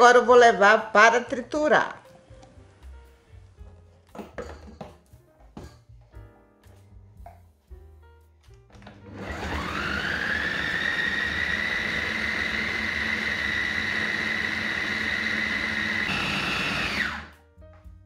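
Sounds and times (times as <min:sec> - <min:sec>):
food processor motor whining: 0:08.8 - 0:17.4.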